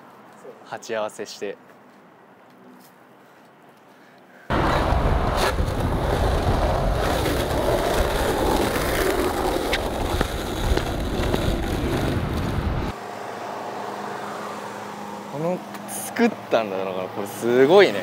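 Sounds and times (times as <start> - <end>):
skateboard wheels rolling on asphalt: 4.5 - 13.0
skateboard clacks: 7.0 - 12.6.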